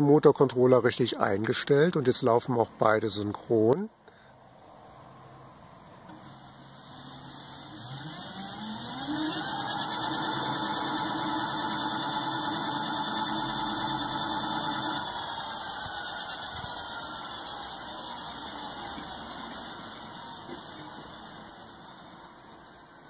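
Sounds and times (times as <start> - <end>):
electric motor whine: 6.1 - 23.0.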